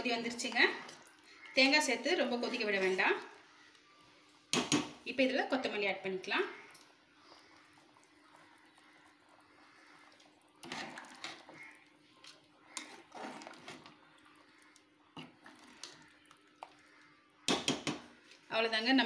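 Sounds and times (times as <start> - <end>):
ladle stirring in metal pot: 0.0 - 3.4, 7.0 - 18.5.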